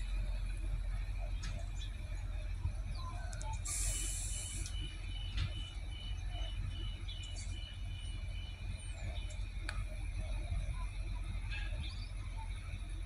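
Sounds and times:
diesel railcar low rumble: 0.0 - 13.0
train door warning beeping: 0.8 - 11.8
short hiss: 3.7 - 4.8.

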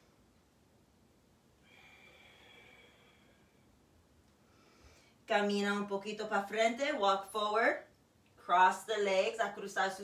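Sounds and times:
faint breath through nose: 4.4 - 5.2.

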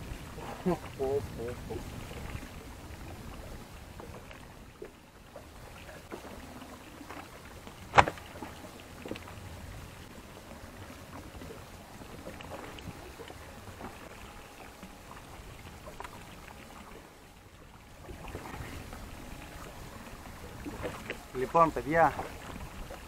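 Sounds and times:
handling noises on a boat: 0.0 - 23.0
low sea background: 0.0 - 23.0
sharp knock: 7.9 - 8.2.

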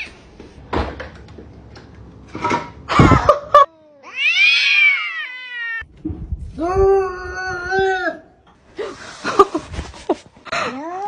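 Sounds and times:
cats yowling: 3.6 - 5.9
cat meowing: 3.9 - 5.9.

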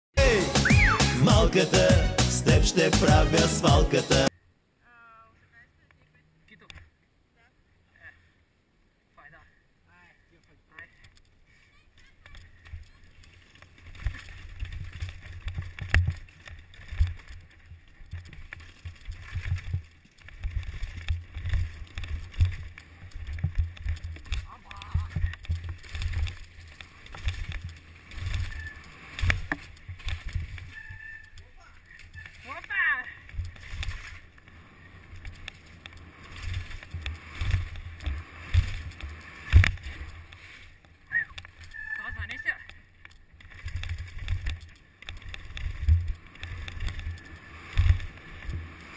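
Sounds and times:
bike knocking and rattling: 10.8 - 41.8, 42.6 - 48.9
short squeak: 28.4 - 29.0, 30.7 - 31.4, 41.1 - 42.7.

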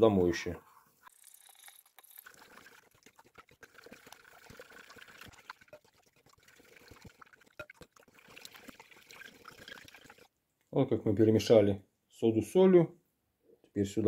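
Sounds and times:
water swishing in a bowl: 1.0 - 10.3.

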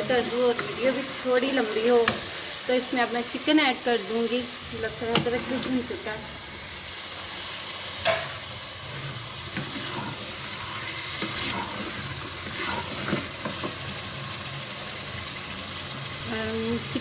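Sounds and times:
chicken sizzling in a pot: 0.0 - 17.0
wooden spatula scraping a pot: 8.8 - 13.8.

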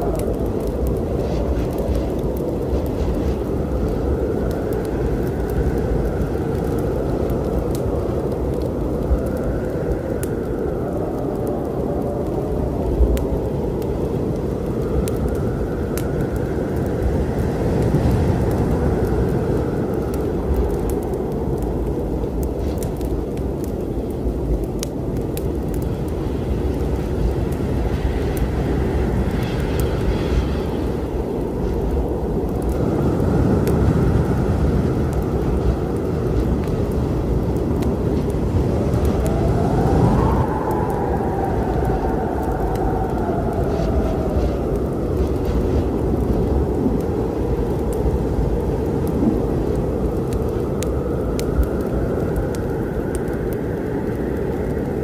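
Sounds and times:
howling wind: 0.0 - 55.0
low storm rumble: 0.0 - 55.0
wood fire crackling: 0.0 - 55.0.

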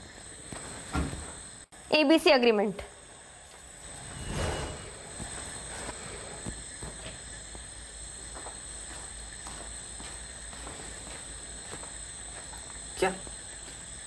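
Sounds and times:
crickets chirping: 0.0 - 14.0
faint footsteps: 4.5 - 14.0.

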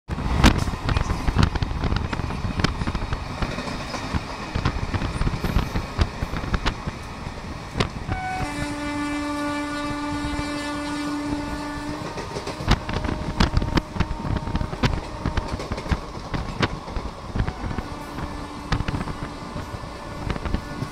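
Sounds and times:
wheels clacking over rail joints: 0.1 - 8.5, 11.5 - 20.9
train rumble: 0.1 - 20.9
train horn blast: 8.1 - 15.6, 17.5 - 20.9.

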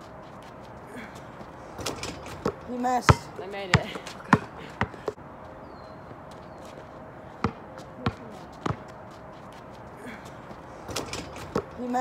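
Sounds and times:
basketball bouncing on asphalt: 0.0 - 12.0.

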